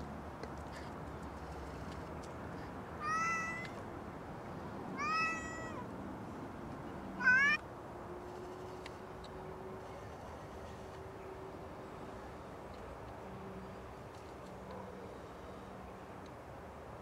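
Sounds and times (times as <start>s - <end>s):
cat meowing: 3.0s - 3.8s, 5.0s - 5.9s, 7.2s - 7.6s.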